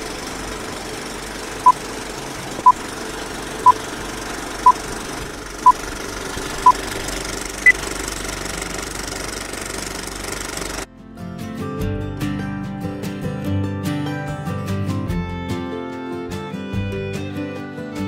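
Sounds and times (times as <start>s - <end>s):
film projector clattering: 0.0s - 10.9s.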